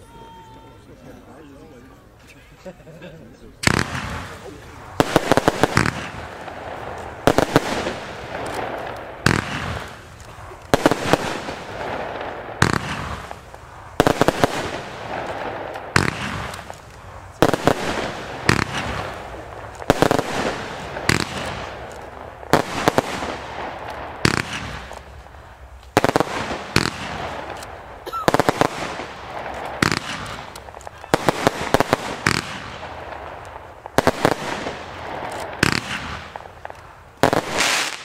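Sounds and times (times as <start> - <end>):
firework shots bursting: 3.6 - 38.0.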